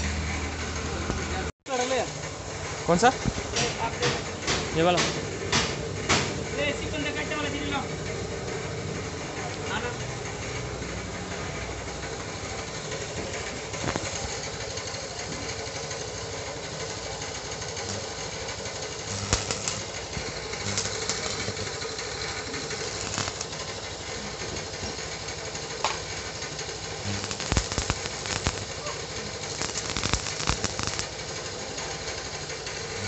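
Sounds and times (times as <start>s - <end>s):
mechanical hum: 0.0s - 33.0s
sharp clicks and crackles: 13.7s - 15.1s, 17.5s - 23.9s, 25.8s - 31.9s.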